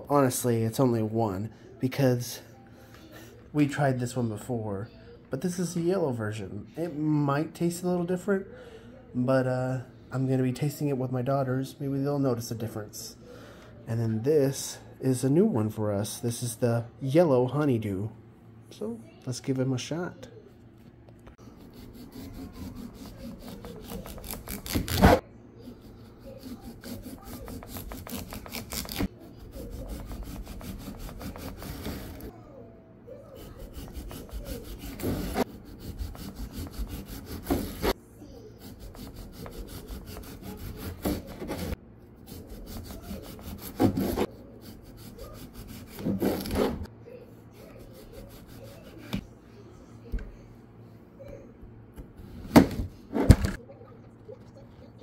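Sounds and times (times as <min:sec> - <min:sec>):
knife sawing through melon: 0:21.6 - 0:32.3, 0:33.4 - 0:38.0, 0:38.6 - 0:46.8.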